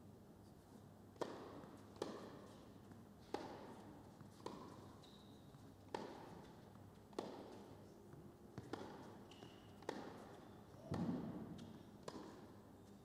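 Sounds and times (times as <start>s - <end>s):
tennis racket hitting ball: 1.2s - 2.6s, 3.2s - 4.9s, 5.9s - 7.6s, 8.6s - 12.6s
tennis ball bouncing on court: 1.2s - 5.2s, 5.9s - 7.8s, 8.5s - 12.7s.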